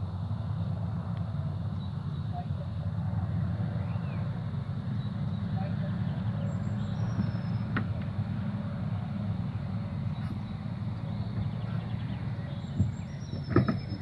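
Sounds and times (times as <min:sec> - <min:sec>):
wind buffeting microphone: 0:11.2 - 0:14.0.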